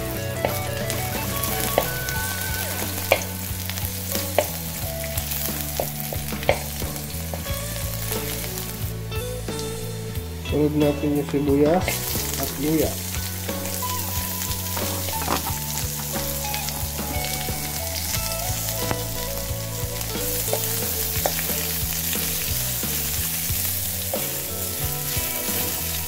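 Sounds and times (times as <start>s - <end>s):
vegetables sizzling in hot oil: 0.0s - 26.0s
wooden spatula scraping pan: 14.7s - 17.4s.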